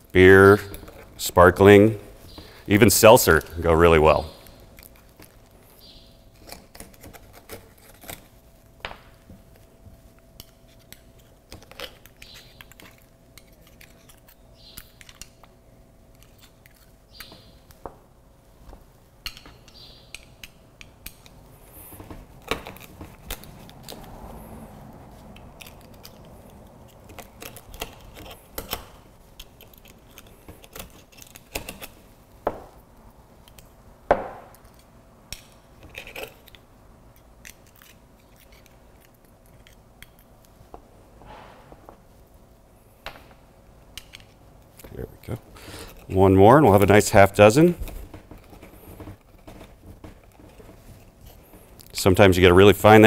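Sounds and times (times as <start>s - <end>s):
oyster knife prying and scraping shells: 6.3s - 8.4s, 10.4s - 17.5s, 25.3s - 32.1s, 34.5s - 40.6s.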